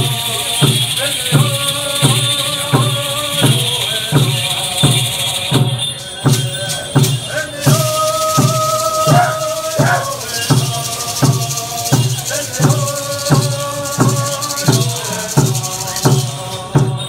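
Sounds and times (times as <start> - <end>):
gourd rattles shaking: 0.0 - 17.0
hand drum beat: 0.0 - 17.0
person chanting long notes: 0.0 - 17.0.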